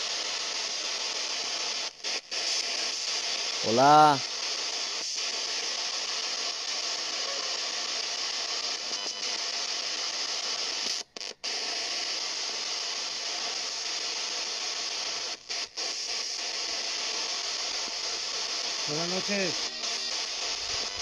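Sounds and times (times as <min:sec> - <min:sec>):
radio static hiss: 0:00.0 - 0:21.0.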